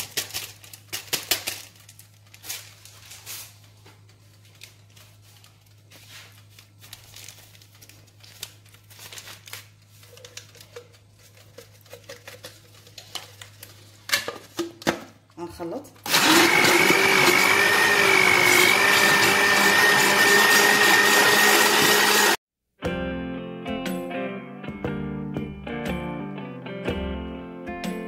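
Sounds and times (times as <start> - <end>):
paper sachets crinkling and tearing: 0.0 - 14.0.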